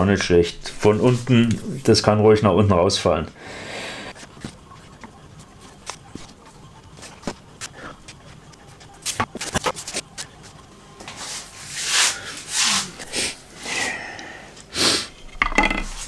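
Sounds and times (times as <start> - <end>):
wood pieces knocking: 15.3 - 16.0.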